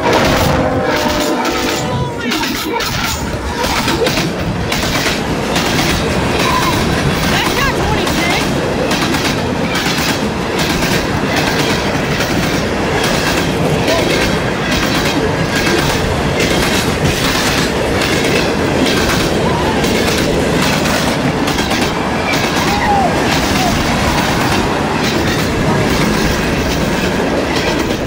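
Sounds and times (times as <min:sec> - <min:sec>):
freight cars rumbling over rails: 0:00.0 - 0:28.0
wheels clacking on rails: 0:00.0 - 0:28.0.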